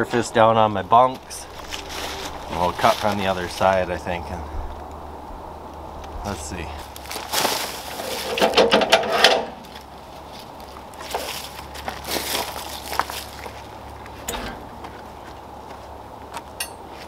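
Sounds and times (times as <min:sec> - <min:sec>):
wood scraping on metal: 0:07.4 - 0:09.8.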